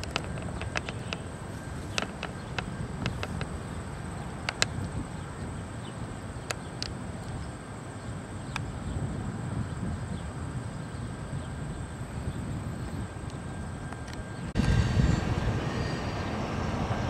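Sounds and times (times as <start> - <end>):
diesel locomotive rumble: 13.6 - 17.0.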